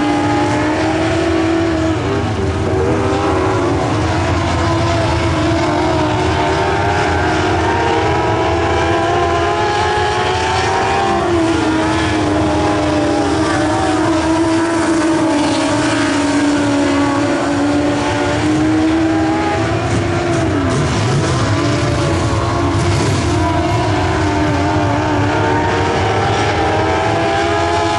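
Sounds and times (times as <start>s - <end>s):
race car engines revving: 0.0s - 27.9s.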